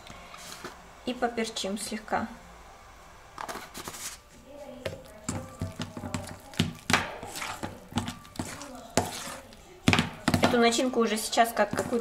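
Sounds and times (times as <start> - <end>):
metal spoon scraping a steel bowl: 6.8 - 9.6.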